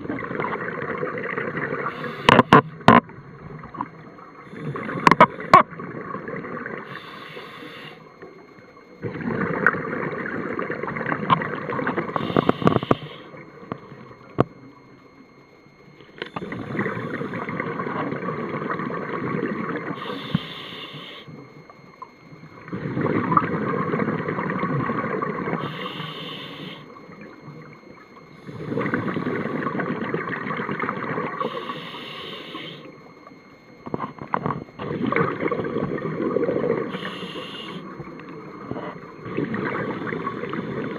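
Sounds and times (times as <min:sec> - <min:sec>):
diver breathing through regulator: 0:01.8 - 0:02.6, 0:06.9 - 0:08.1, 0:12.2 - 0:13.4, 0:20.0 - 0:21.3, 0:25.6 - 0:26.9, 0:31.4 - 0:32.9, 0:36.9 - 0:37.9
exhaled bubbles rushing: 0:09.0 - 0:12.2, 0:22.5 - 0:25.7, 0:28.3 - 0:31.4, 0:34.8 - 0:37.0, 0:37.9 - 0:40.9.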